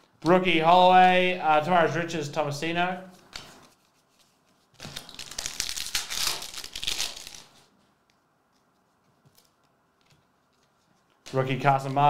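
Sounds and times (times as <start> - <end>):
faint clicks of cards handled: 3.1 - 5.1, 7.8 - 12.0
foil wrapper tearing and crinkling: 4.7 - 7.7.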